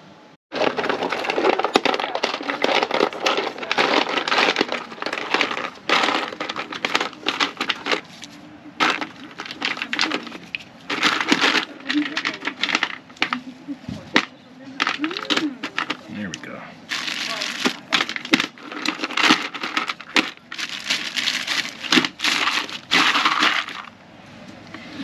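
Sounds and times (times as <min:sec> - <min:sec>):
packaging crinkling: 0:00.5 - 0:13.5, 0:16.9 - 0:23.9
tools clattering in drawer: 0:00.6 - 0:08.1, 0:08.8 - 0:13.5, 0:17.0 - 0:23.9.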